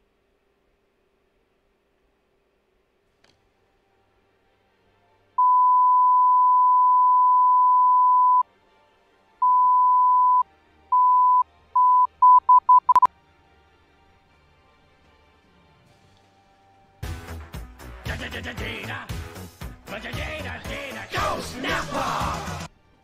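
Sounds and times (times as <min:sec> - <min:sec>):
electronic beeps: 0:05.4 - 0:08.4, 0:09.4 - 0:10.4, 0:11.0 - 0:13.1.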